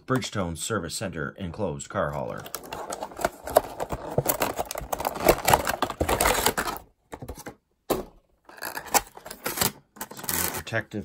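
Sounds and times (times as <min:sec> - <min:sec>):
plastic packaging crackling: 0:02.5 - 0:06.9.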